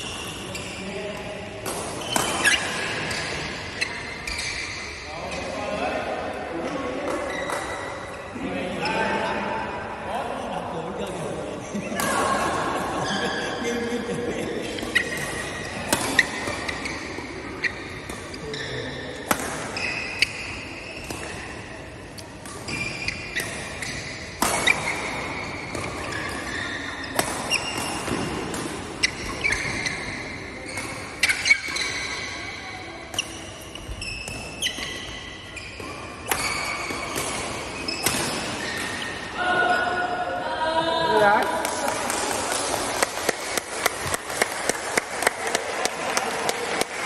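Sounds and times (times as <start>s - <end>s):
shoes squeaking on court floor: 0.0s - 1.0s, 1.9s - 5.7s, 7.0s - 9.1s, 14.6s - 39.3s
racket hitting shuttlecock: 1.6s - 4.9s, 14.8s - 39.4s, 42.1s - 47.0s.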